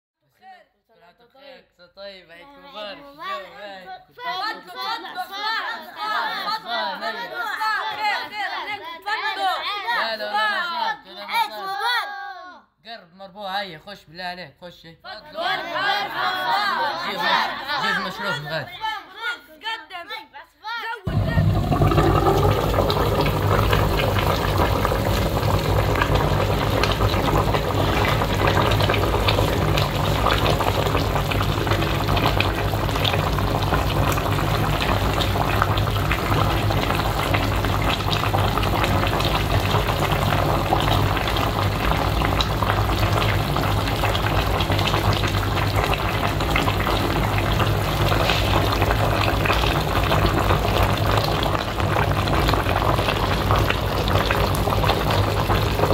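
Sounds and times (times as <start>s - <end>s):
sauce bubbling and sizzling: 21.1s - 55.9s.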